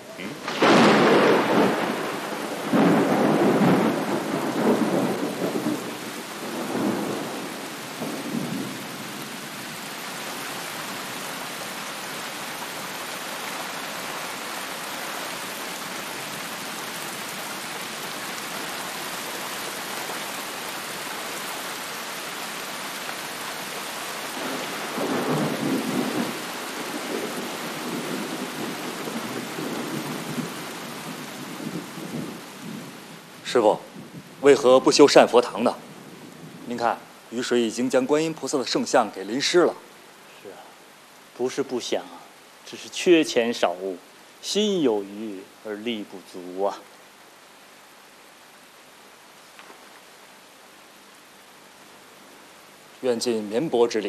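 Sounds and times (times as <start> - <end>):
steady rain falling: 0.0 - 54.0
thunder rolling: 0.3 - 8.8, 24.4 - 37.0.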